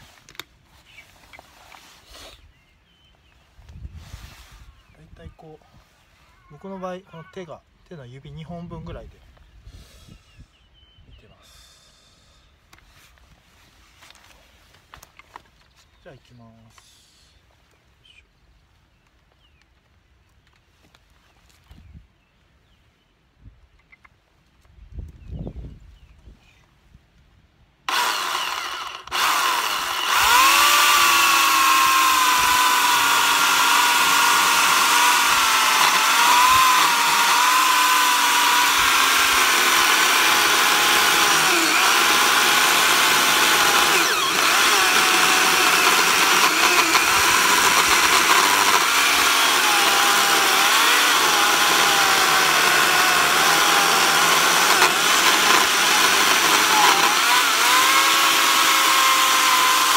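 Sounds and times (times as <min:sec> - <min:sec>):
chainsaw cutting log: 0:27.9 - 0:59.9.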